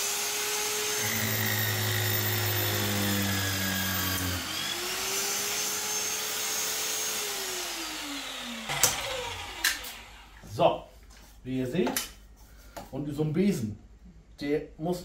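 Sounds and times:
drill bit cutting steel: 0.1 - 10.4
magnetic drill motor running: 0.8 - 6.3, 7.0 - 10.4.

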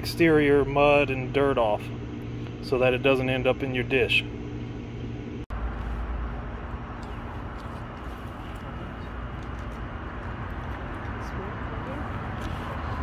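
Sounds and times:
coals crackling: 5.6 - 13.0.

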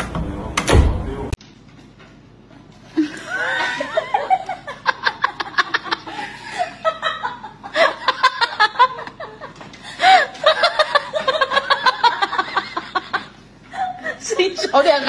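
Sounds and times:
person laughing hard: 3.0 - 14.7.

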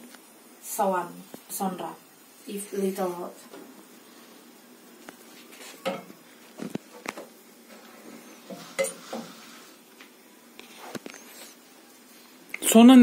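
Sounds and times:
cookware knocks and clinks: 8.5 - 9.0.

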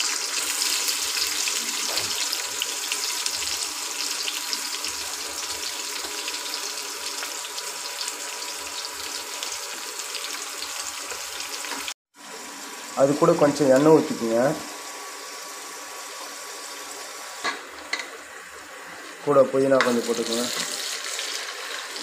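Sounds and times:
onions sizzling in butter: 0.0 - 22.0.

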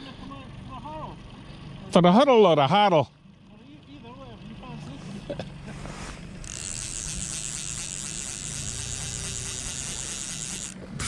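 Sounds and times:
small outboard motor running: 0.0 - 11.0
fishing reel ratchet clicking: 6.4 - 11.0.

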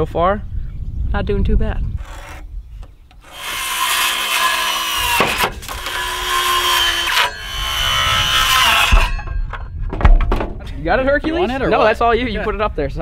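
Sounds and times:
circular saw cutting wood: 2.0 - 2.5, 3.2 - 9.4.

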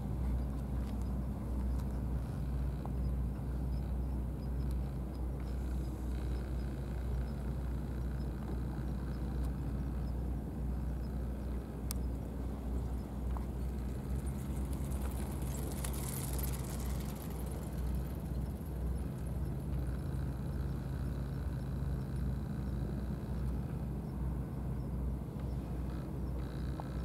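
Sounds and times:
low outdoor rumble: 0.0 - 27.0.

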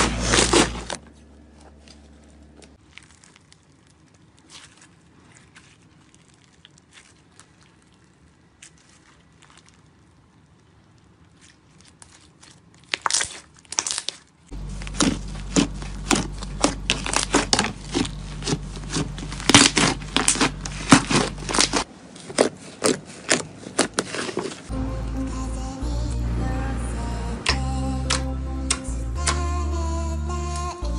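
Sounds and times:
slime crackling and popping: 2.8 - 24.0
steady low hum: 14.5 - 22.1, 24.6 - 30.9.

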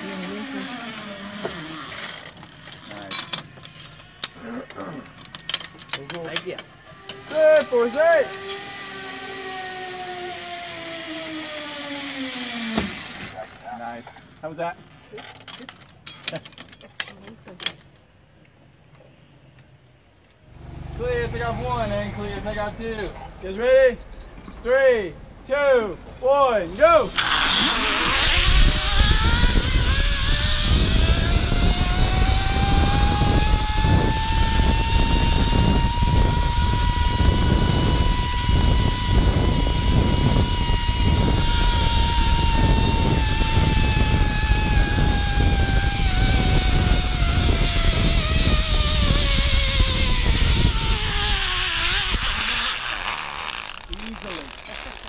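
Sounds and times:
pulley wheels whining on cable: 0.0 - 4.3, 5.2 - 13.6, 27.0 - 55.0
wind rushing: 26.9 - 52.6.

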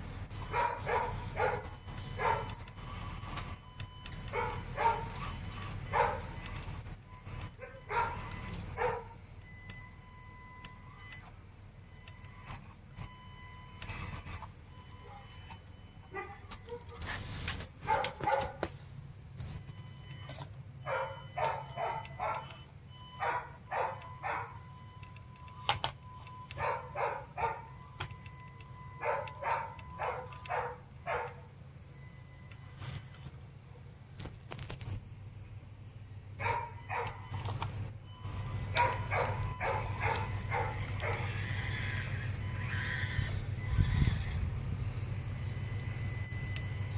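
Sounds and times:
steady low hum: 0.0 - 46.9
dog barking: 0.5 - 2.6, 4.3 - 5.3, 5.9 - 6.4, 7.6 - 9.2, 16.1 - 17.0, 17.8 - 18.6, 20.8 - 22.6, 23.2 - 24.6, 26.6 - 27.7, 29.0 - 31.5, 36.4 - 37.2, 38.7 - 41.4
electric toy truck motor whine: 13.5 - 15.5, 38.3 - 46.9.

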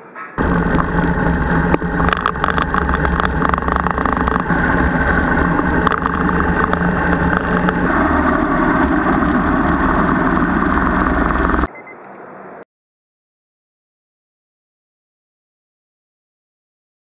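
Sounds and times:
motorcycle engine running: 0.4 - 11.7
wind noise on microphone: 0.4 - 11.7.

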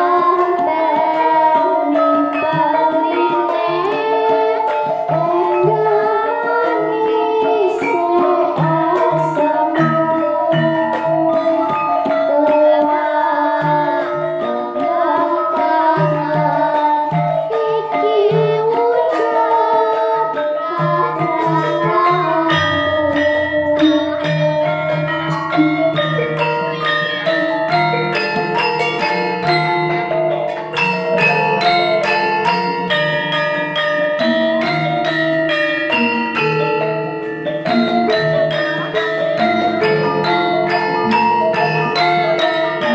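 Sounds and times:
girl singing into microphone: 0.0 - 28.2
gamelan ensemble playing: 0.0 - 42.9
hand drum patterning: 0.0 - 42.9.

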